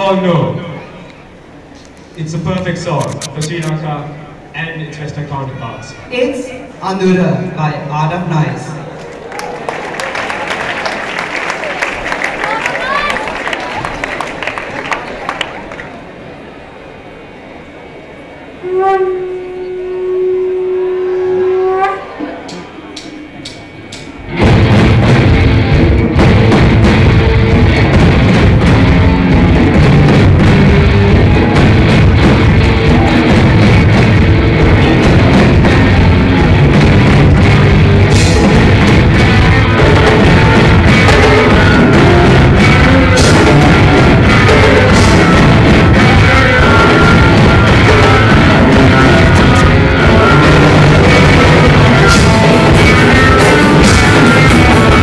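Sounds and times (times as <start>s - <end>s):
rock band playing: 22.2s - 55.0s.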